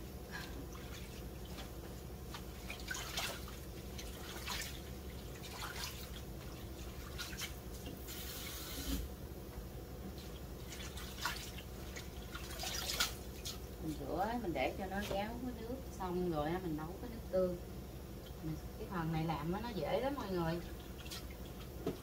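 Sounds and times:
hands splashing greens in water: 0.4s - 8.1s, 10.6s - 13.6s.

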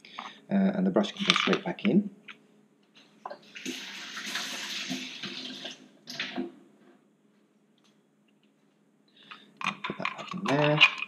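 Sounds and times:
water running: 3.2s - 6.6s.

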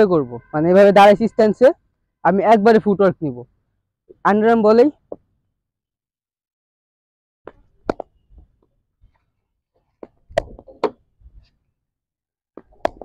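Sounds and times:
cricket ball bouncing on concrete: 5.0s - 5.3s, 7.5s - 8.2s, 10.0s - 11.0s, 12.6s - 13.0s
ball hitting wooden bat: 7.5s - 8.2s, 10.0s - 11.1s, 12.6s - 13.0s.

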